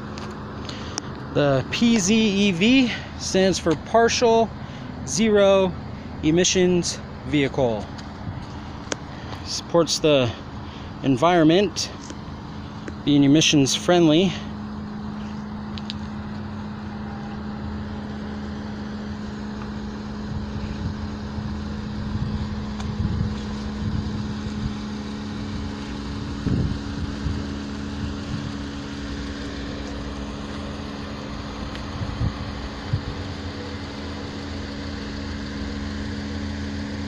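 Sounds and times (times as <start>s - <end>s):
wind gusting on microphone: 20.2s - 28.7s, 31.9s - 33.4s.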